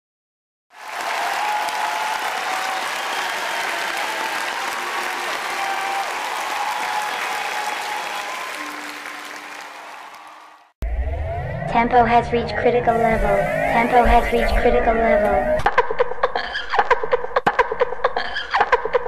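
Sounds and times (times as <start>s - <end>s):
crowd applauding: 0.7s - 10.8s.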